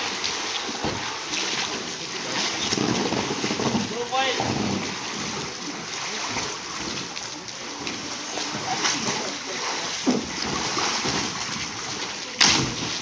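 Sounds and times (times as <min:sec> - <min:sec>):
pool water splashing and sloshing: 0:00.0 - 0:13.0.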